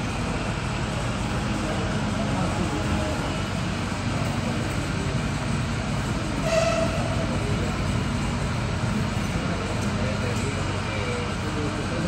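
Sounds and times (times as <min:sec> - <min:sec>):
horn-like tone: 0:06.4 - 0:07.2.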